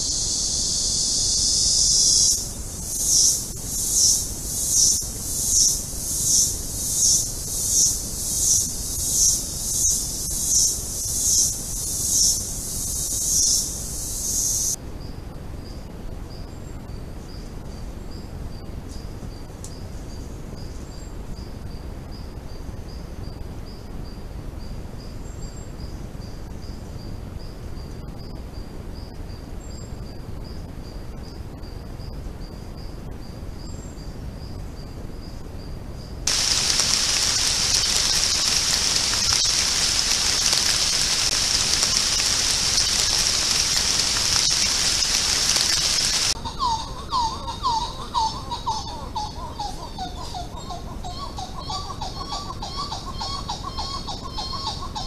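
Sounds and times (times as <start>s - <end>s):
loud insect chorus buzzing: 0.0s - 14.8s, 36.3s - 46.4s
faint high insect chirp: 0.0s - 55.0s.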